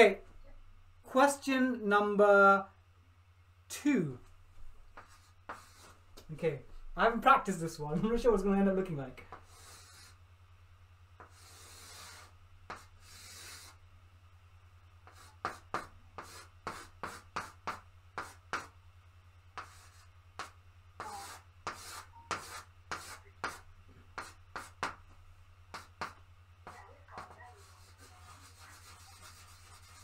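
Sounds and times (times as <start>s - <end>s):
low steady hum: 0.0s - 30.0s
chalk taps: 4.9s - 6.3s, 9.3s - 10.2s, 11.2s - 13.8s, 15.0s - 18.8s, 19.6s - 30.0s
chalk scraping on blackboard: 5.0s - 6.0s, 9.3s - 10.2s, 11.2s - 13.8s, 15.0s - 18.8s, 19.6s - 25.0s, 25.7s - 30.0s.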